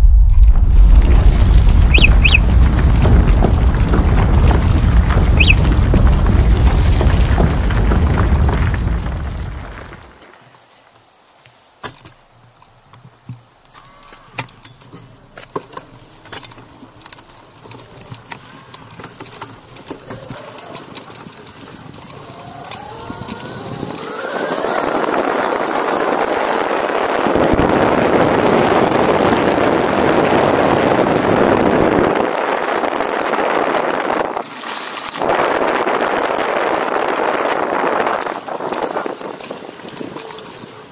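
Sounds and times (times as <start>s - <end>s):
wind rush on microphone: 0.0s - 10.2s, 19.7s - 40.9s
bike clicks and rattles: 11.8s - 40.9s.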